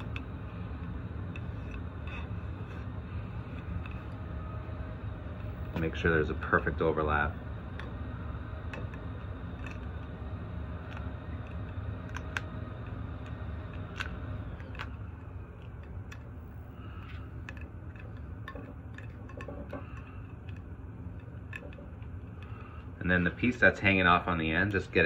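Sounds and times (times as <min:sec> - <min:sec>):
steady low hum: 0:00.0 - 0:25.0
small handling clicks: 0:08.6 - 0:22.8.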